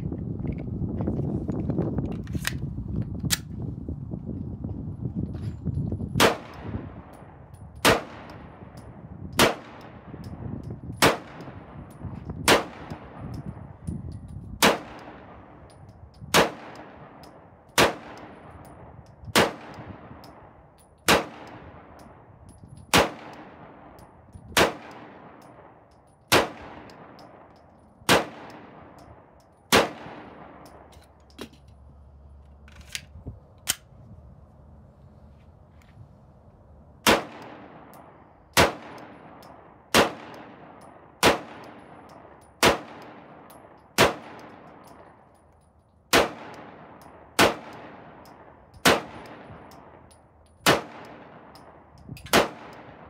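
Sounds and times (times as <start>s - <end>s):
pistol handling clicks: 2.0s - 3.5s, 6.2s - 31.8s, 32.5s - 33.9s, 37.0s - 52.9s
pistol shots: 6.2s - 6.8s, 7.8s - 8.5s, 9.4s - 10.1s, 11.0s - 11.7s, 12.4s - 13.2s, 14.6s - 15.6s, 16.3s - 18.4s, 19.4s - 20.4s, 21.1s - 22.0s, 22.9s - 24.0s, 24.6s - 29.1s, 29.7s - 30.8s, 37.0s - 45.0s, 46.1s - 50.0s, 50.6s - 51.7s, 52.3s - 53.0s.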